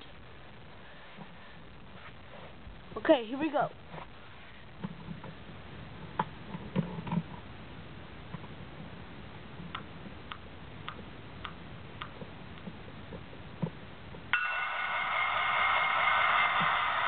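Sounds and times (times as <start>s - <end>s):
faint regular ticking: 9.7s - 13.2s
model locomotive sound from speaker: 14.3s - 17.0s.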